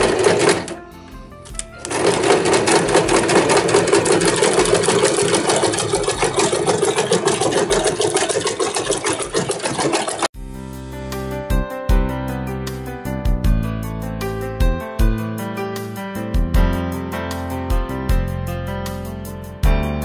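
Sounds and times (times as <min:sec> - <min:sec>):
sewing machine needle rattle: 0:00.0 - 0:00.8, 0:01.5 - 0:10.3.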